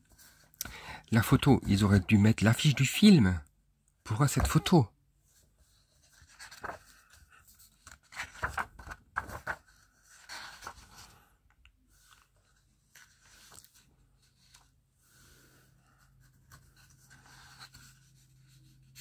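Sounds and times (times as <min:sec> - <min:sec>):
book pages rustling: 0:04.2 - 0:19.0.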